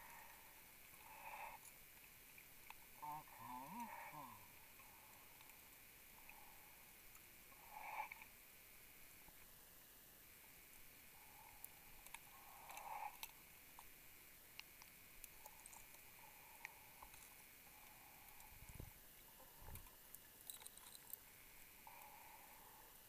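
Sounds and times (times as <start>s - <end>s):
faint rebreather breathing: 0.0s - 1.9s, 11.1s - 13.6s, 21.3s - 23.0s
small clicks: 19.6s - 21.2s.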